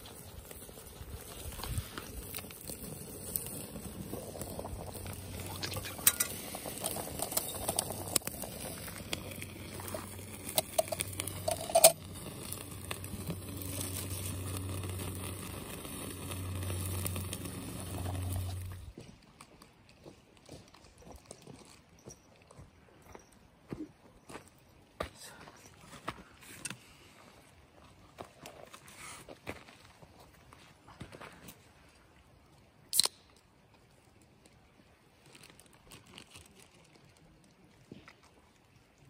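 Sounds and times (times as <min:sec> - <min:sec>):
wood fire crackling: 0:00.0 - 0:21.3.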